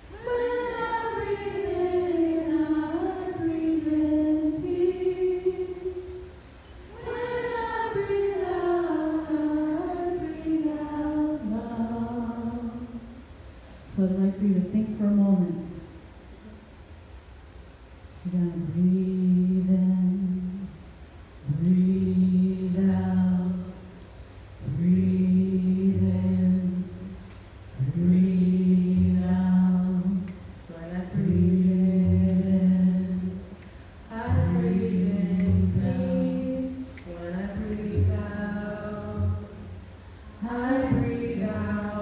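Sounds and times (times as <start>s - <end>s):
chanting long vowel: 21.4s - 23.9s, 27.8s - 42.0s.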